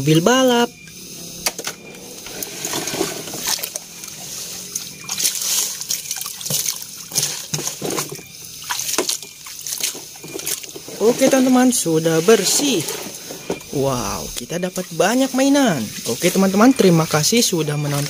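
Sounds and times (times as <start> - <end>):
muddy water sloshing: 1.8 - 11.6.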